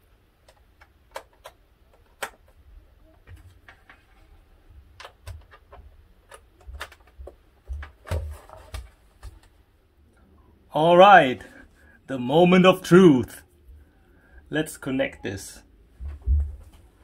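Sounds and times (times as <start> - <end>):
cable plugs clicking into sockets: 0.5 - 2.6
plastic case handled: 5.0 - 9.6.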